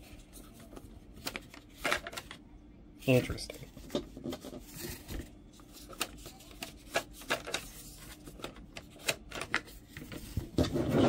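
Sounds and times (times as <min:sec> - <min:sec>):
handling rustle: 0:03.5 - 0:10.9.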